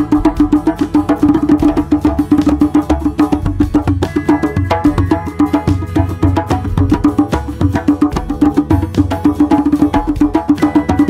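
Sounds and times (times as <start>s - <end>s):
hand drums played fast: 0.0s - 11.0s.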